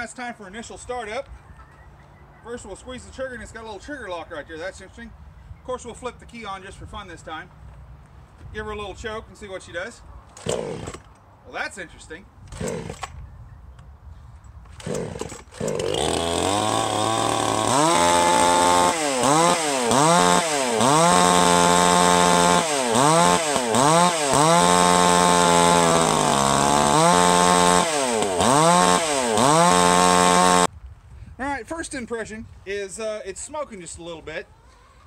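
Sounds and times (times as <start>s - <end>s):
chainsaw revving: 10.4s - 11.0s, 12.5s - 13.1s, 14.8s - 30.7s.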